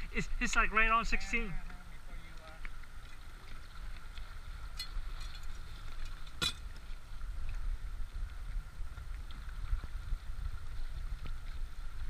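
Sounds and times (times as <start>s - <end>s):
wind buffeting microphone: 0.0s - 12.0s
faint ticks: 1.6s - 7.6s.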